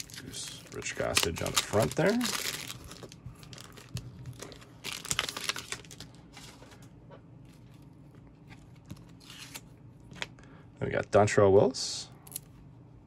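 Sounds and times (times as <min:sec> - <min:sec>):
plastic card sleeves crinkling: 0:00.0 - 0:06.8.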